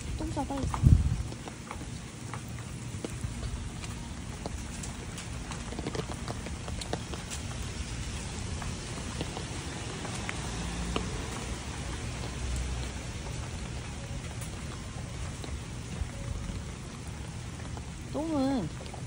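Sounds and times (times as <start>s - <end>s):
raindrops ticking close by: 0.0s - 19.0s
steady rain falling: 0.0s - 19.0s.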